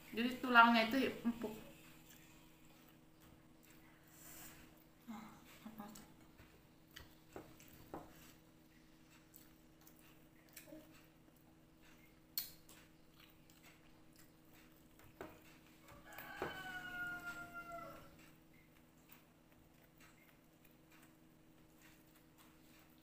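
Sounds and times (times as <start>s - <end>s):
clicks and taps of eating from a plate: 5.9s - 8.2s, 11.9s - 17.4s
rooster crowing: 15.8s - 18.2s.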